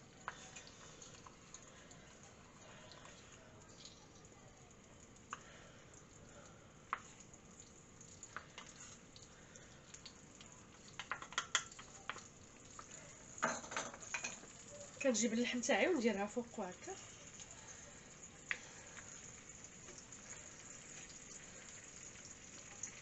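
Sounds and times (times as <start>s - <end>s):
onion sizzling in oil: 0.0s - 23.0s.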